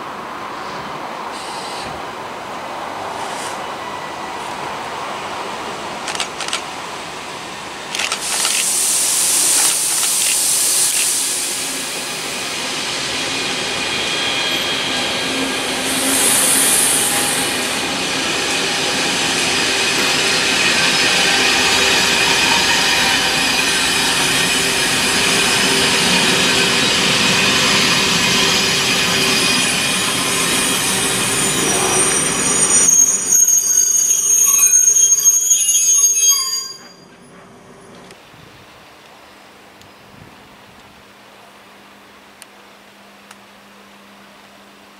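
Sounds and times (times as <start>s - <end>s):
wheel-on-rail noise: 7.6s - 12.1s
train motor whine: 7.9s - 12.3s
high squealing tones: 26.0s - 37.2s.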